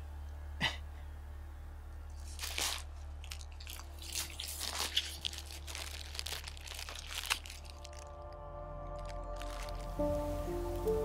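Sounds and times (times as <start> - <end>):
plastic wrapper crinkling and tearing: 2.1 - 10.2.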